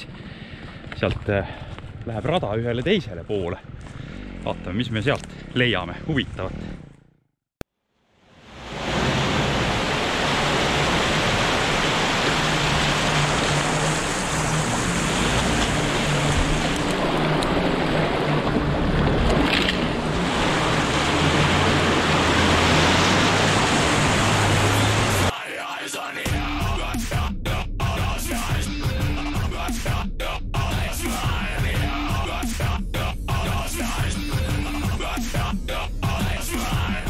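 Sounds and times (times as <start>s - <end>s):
off-road engines under load: 0.0s - 7.3s, 9.0s - 25.3s
water splashing and mud churning: 8.4s - 25.3s.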